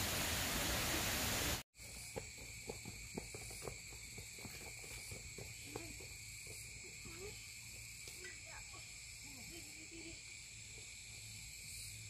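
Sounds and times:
footsteps on dirt: 1.8 - 7.1
insects trilling: 1.8 - 12.0.

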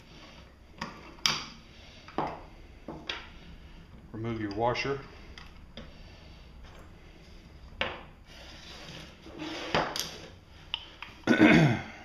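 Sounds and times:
metal tools scraping on wooden bench: 7.9 - 10.4.

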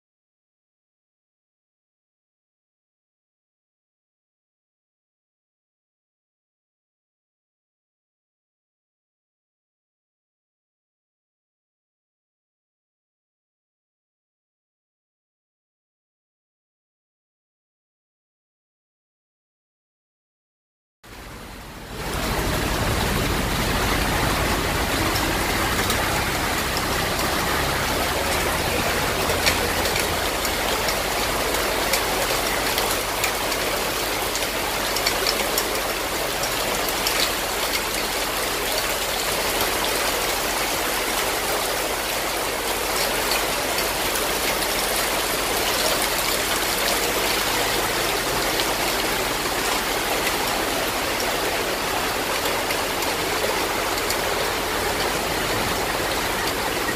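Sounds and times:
heavy rain pouring: 21.1 - 56.9
runoff water rushing: 21.1 - 56.9.

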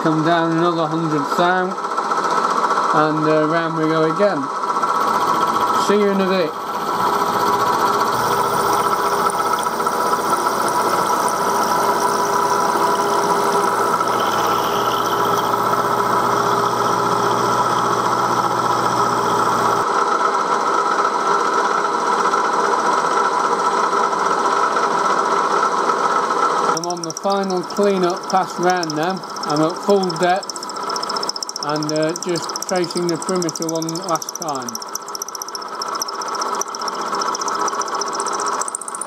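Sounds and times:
milling machine whine: 3.5 - 19.9, 26.6 - 39.0
deep machine hum: 5.0 - 19.8, 26.7 - 37.8.

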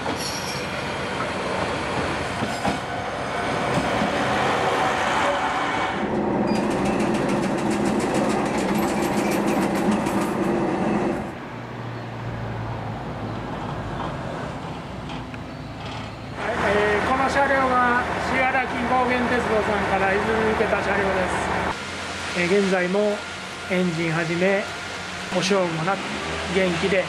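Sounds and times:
diesel railcar passing: 0.0 - 27.0
wheels clattering on rails: 6.1 - 11.3, 13.6 - 18.4
wheels clicking on track: 6.4 - 10.7.

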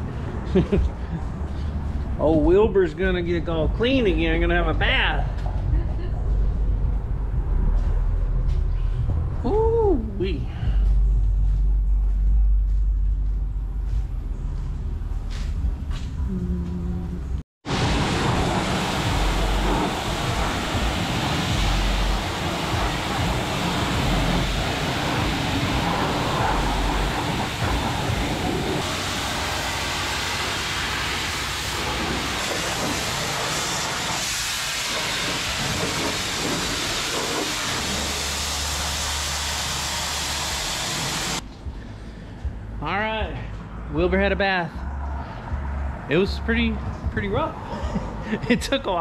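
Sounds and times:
pressure washer spraying water: 17.7 - 41.4.

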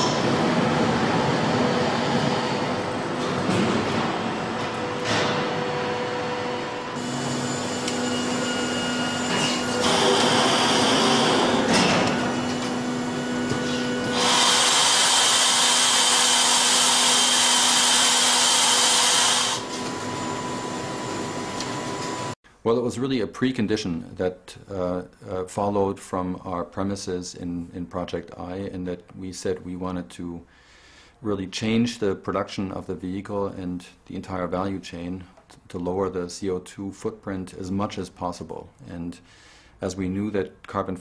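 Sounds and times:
factory machinery humming: 0.0 - 22.4
loud air hiss: 13.7 - 19.6.

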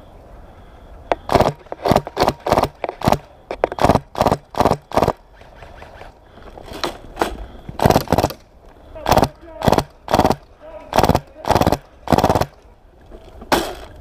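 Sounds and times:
short sharp cracks: 1.1 - 8.5.

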